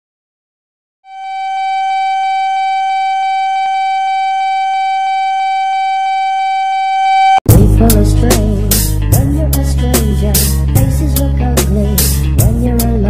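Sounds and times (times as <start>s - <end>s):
steady electronic tone: 1.1s - 9.1s
hip-hop music with heavy bass: 7.5s - 13.0s.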